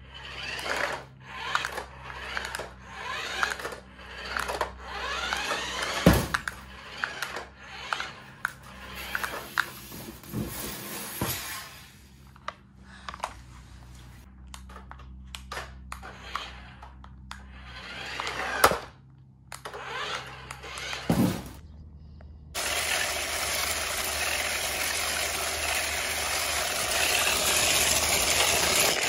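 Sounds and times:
toy electric motor whirring: 0.0s - 12.3s, 14.6s - 21.3s, 22.6s - 29.0s.

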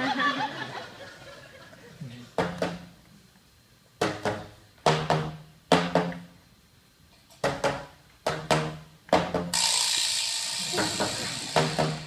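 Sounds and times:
pitched drum strikes: 2.4s - 3.0s, 4.0s - 6.3s, 7.4s - 10.0s, 10.6s - 12.0s.

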